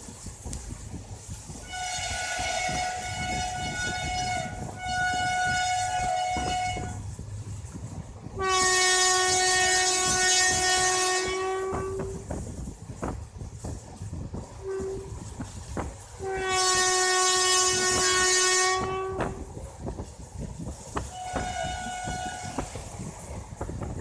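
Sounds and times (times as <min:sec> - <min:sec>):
train wheels clattering: 0:00.0 - 0:24.0
locomotive horn blasts: 0:01.6 - 0:07.0, 0:08.4 - 0:12.3, 0:14.6 - 0:15.3, 0:16.2 - 0:19.5, 0:21.0 - 0:22.9.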